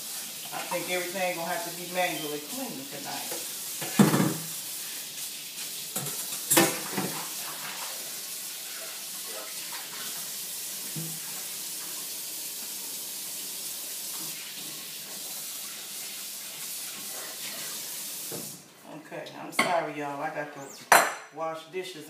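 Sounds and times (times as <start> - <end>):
faucet running into sink: 0.0 - 18.6
dishes knocking: 3.8 - 4.5, 20.9 - 21.3.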